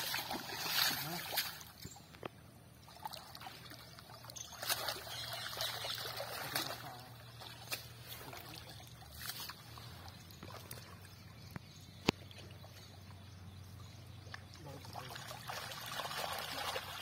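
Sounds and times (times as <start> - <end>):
sharp water splashes: 0.0 - 2.0, 2.8 - 11.2, 14.3 - 17.0
water sloshing and trickling: 0.0 - 17.0.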